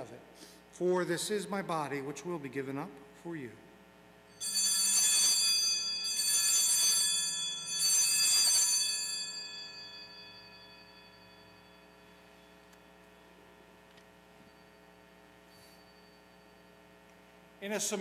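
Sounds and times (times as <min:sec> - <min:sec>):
altar bells ringing: 0:04.3 - 0:13.4, 0:14.3 - 0:16.8.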